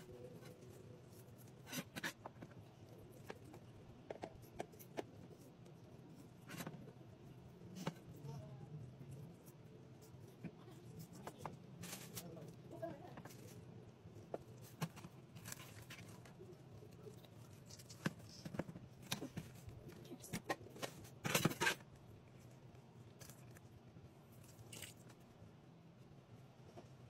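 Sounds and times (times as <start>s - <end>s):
meat tearing: 24.4s - 25.2s.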